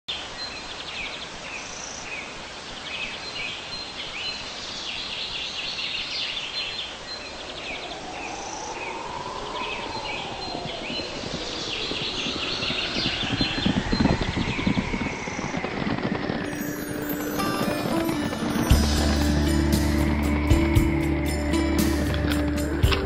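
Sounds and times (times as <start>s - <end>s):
birds chirping and trilling: 0.2s - 23.0s
rising and falling tone: 7.4s - 23.0s.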